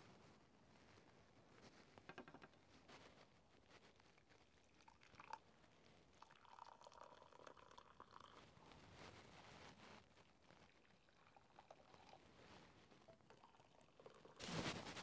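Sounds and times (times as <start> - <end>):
liquid pouring into mug: 4.4 - 5.5, 6.2 - 8.8, 10.7 - 12.2, 13.1 - 14.4.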